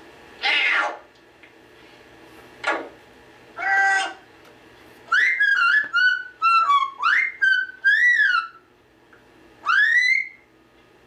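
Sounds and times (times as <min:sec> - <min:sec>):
bird whistling: 0:05.1 - 0:08.6, 0:09.6 - 0:10.5.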